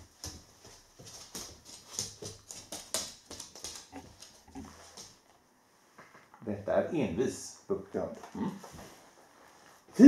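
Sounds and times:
dog claws clicking on wood floor: 0.1s - 5.2s.

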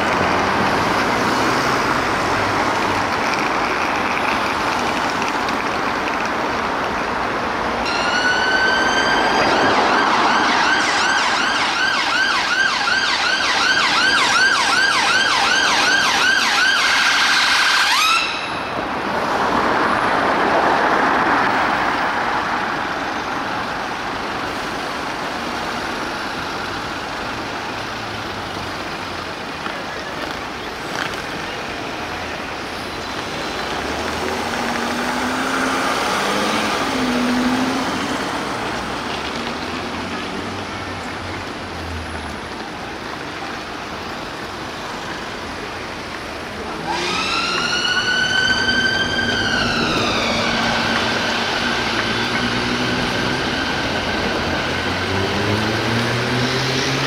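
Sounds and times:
city traffic: 0.0s - 57.0s
ambulance siren: 7.8s - 18.8s, 34.2s - 39.1s, 46.6s - 57.0s.

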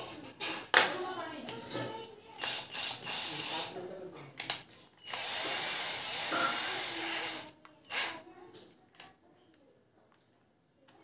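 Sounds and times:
drill motor running: 2.4s - 3.8s, 5.0s - 8.1s.

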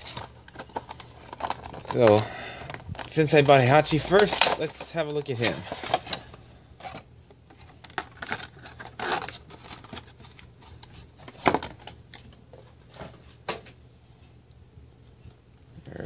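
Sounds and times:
plastic packaging crinkling: 0.0s - 12.4s.

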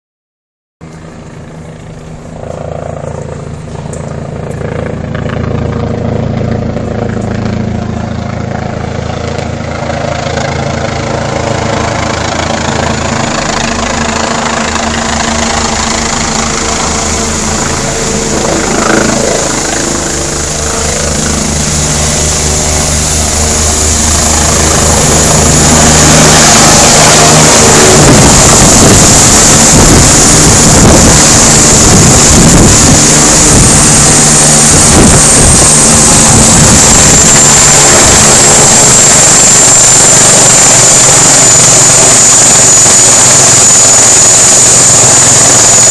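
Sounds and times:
helicopter turbine and rotor: 0.8s - 45.9s
rotor wash rushing: 9.6s - 45.9s.

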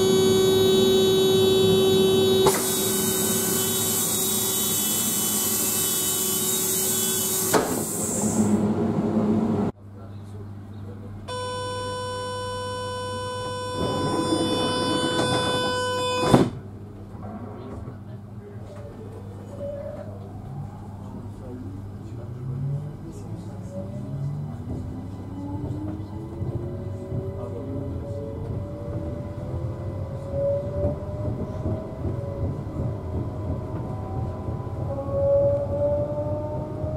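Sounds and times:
wheels rumbling on track: 0.0s - 3.6s, 7.5s - 11.3s, 12.8s - 36.9s
electronic warning tone: 11.3s - 16.4s
train traction whine rising: 19.1s - 36.9s.

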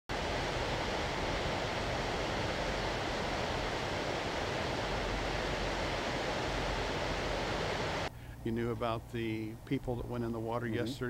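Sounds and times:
whitewater rushing over rocks: 0.1s - 8.1s.

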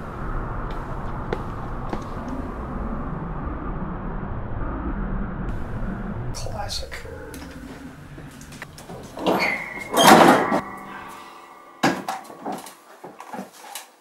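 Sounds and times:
attic hatch creaking: 7.2s - 13.9s
ladder clunking and knocking: 8.7s - 10.8s, 11.8s - 13.8s.

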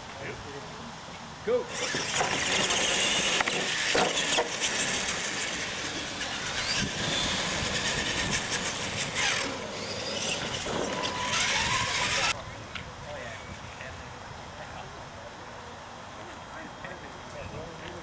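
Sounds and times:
electric motors whining: 1.7s - 12.4s.

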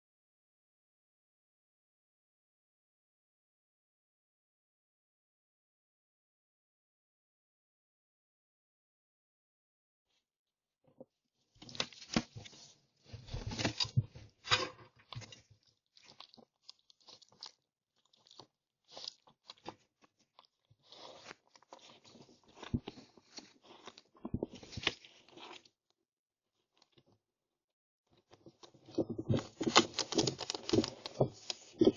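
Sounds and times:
fox chewing and crunching food: 11.6s - 25.8s, 28.2s - 31.9s.

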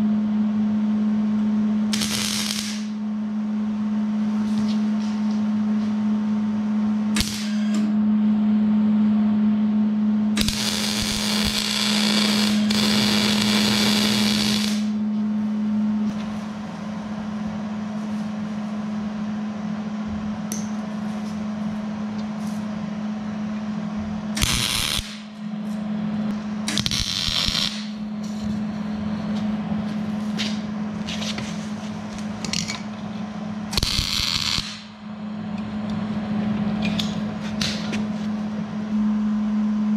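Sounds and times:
steady low hum: 0.0s - 39.9s
welder arc crackling: 1.9s - 3.0s, 7.2s - 7.5s, 10.4s - 15.0s, 24.4s - 25.3s, 26.7s - 28.0s, 33.8s - 35.0s.

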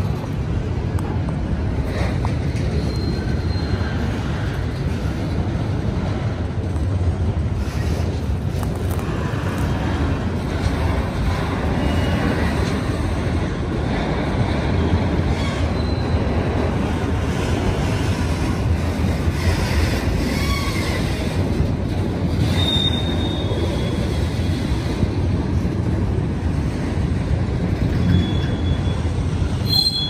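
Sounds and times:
train wheels rumbling on rail: 0.0s - 30.0s
faint high squeals: 2.6s - 4.1s, 22.5s - 24.2s, 28.0s - 30.0s.

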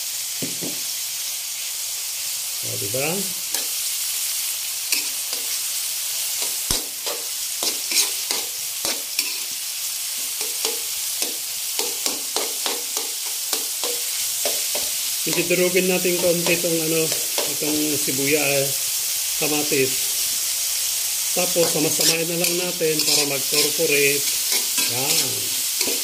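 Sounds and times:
food sizzling in hot oil: 0.0s - 26.0s
spatula scraping and tapping a pan: 4.9s - 5.6s, 6.4s - 9.6s, 10.2s - 17.6s, 21.6s - 26.0s.

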